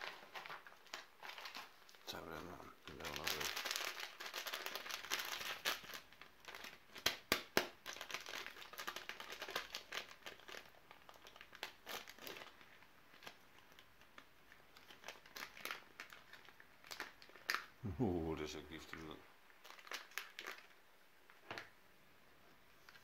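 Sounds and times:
food packet crinkling: 0.0 - 17.8, 18.8 - 21.8.

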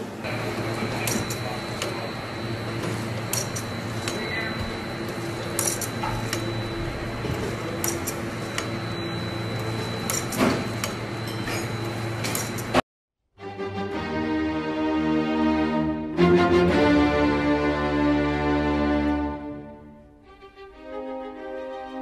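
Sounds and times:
machinery hum with high whine: 0.0 - 12.8.

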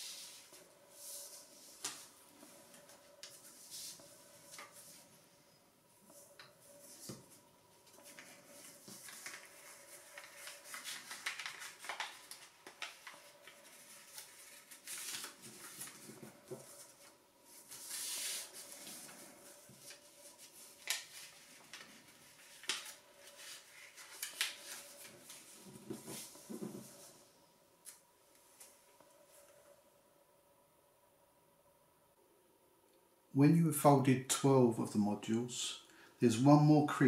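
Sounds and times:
paper rustling and crinkling: 0.0 - 5.2, 6.0 - 29.6
sliding paper rustle: 6.0 - 27.3
paper crackles: 6.1 - 27.2.

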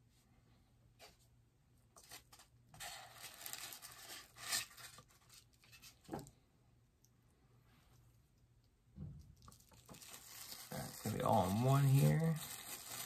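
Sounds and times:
packaging tearing and rustling: 2.0 - 6.0, 9.4 - 13.0.

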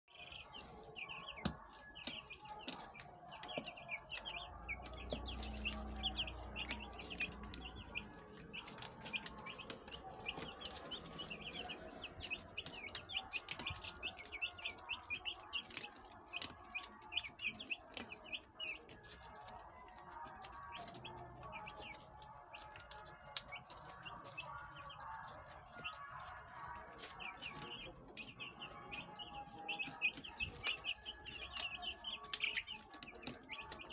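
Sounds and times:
chicks peeping: 0.0 - 33.9.

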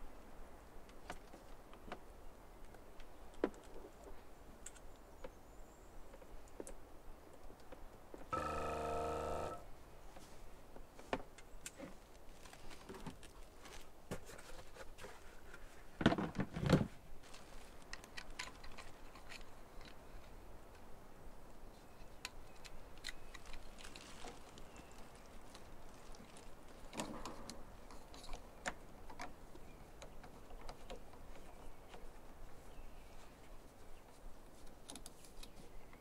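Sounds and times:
electric water pump buzzing: 8.3 - 9.6.

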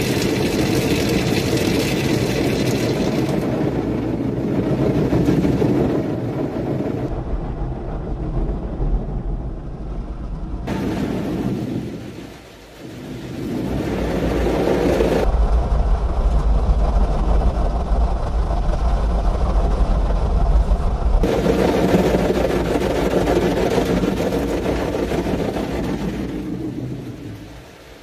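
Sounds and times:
car wash brushes rotating: 0.0 - 7.0, 21.2 - 27.6
water spraying on car: 0.0 - 7.0, 21.2 - 28.0
deep rumble: 0.0 - 28.0.

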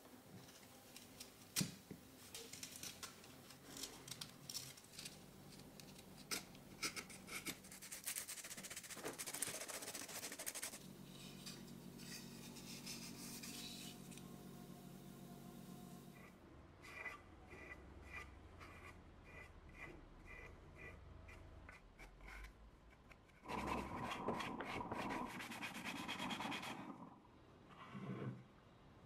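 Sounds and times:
knife scraping wood: 6.3 - 14.1
sandpaper rubbing wood: 7.6 - 11.4, 12.0 - 14.0
faint steady hum: 10.0 - 27.8.

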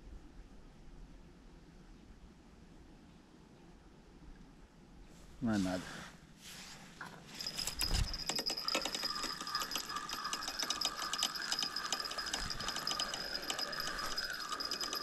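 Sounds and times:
fishing reel whirring clicks: 7.4 - 15.0.

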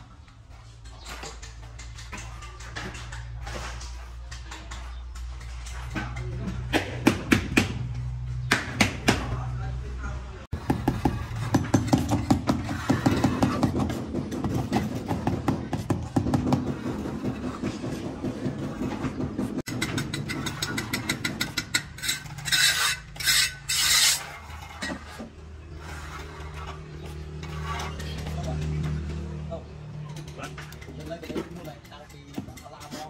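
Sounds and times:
tool scraping hard surface: 10.5 - 28.6.

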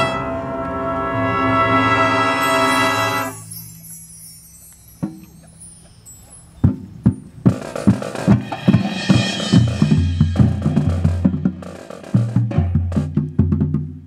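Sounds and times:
marching band drums: 6.6 - 14.0.

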